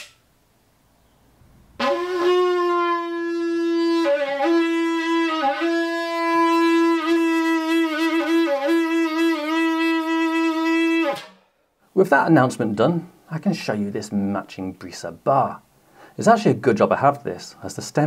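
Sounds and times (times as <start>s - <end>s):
wind instrument playing: 1.8s - 11.6s.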